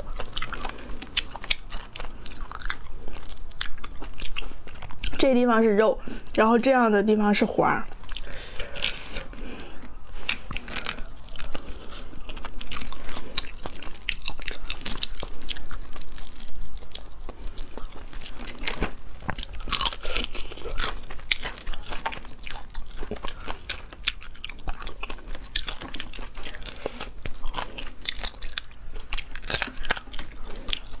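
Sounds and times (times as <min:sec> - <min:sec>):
chewing: 0:00.0 - 0:05.3, 0:07.9 - 0:31.0
crayfish shells cracking: 0:12.4 - 0:31.0.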